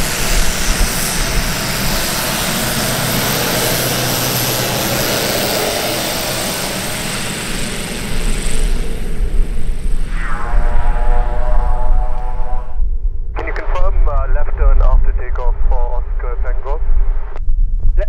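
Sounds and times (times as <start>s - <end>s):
propeller drone: 0.0s - 13.9s
turboprop engine whine: 0.0s - 18.0s.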